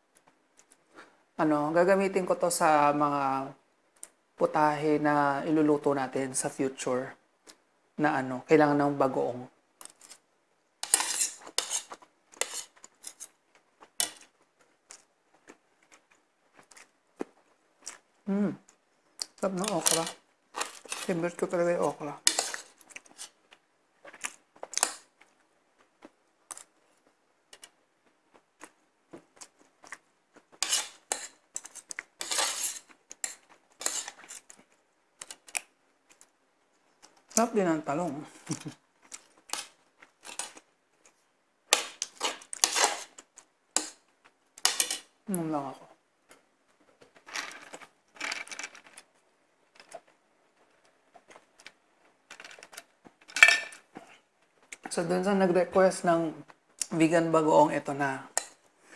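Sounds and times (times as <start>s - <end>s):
cutlery clinking and scraping on plate: 10.8s - 13.3s, 19.6s - 21.1s, 22.3s - 23.3s, 30.6s - 34.5s, 39.5s - 40.6s, 41.7s - 43.2s, 44.6s - 45.1s, 53.3s - 54.2s.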